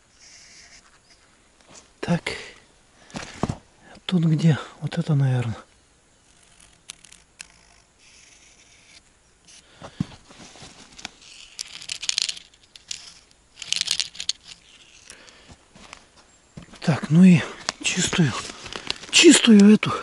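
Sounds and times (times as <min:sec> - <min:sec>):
small clicks and rustles: 0:10.2 - 0:16.8, 0:17.6 - 0:19.7.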